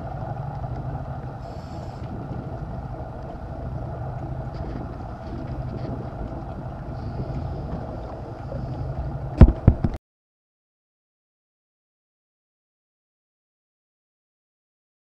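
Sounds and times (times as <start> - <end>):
boat engine hum: 0.0 - 10.0
wind and water rushing: 0.0 - 10.0.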